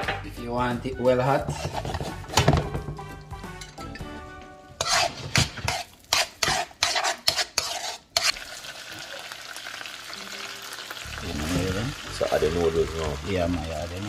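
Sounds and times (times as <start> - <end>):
sharp scrapes in a wok: 1.4 - 2.6, 4.8 - 8.6
onions sizzling in a wok: 4.6 - 14.0.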